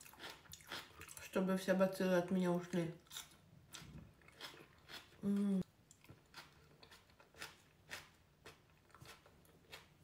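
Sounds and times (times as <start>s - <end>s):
close chewing crunchy food: 0.0s - 1.4s, 2.7s - 10.0s
person humming: 5.2s - 5.6s.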